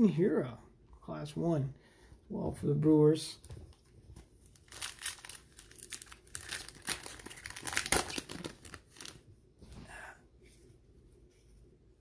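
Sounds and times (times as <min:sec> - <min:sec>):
wrapper tearing and crinkling: 0:04.4 - 0:09.2.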